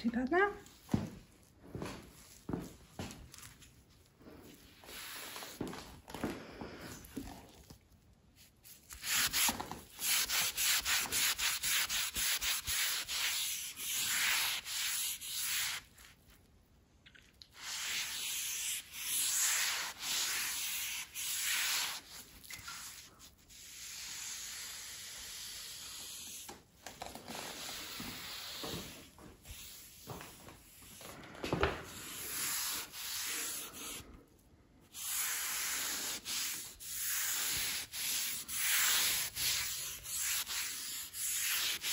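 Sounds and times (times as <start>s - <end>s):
cloth scrubbing on stone worktop: 35.0s - 41.9s.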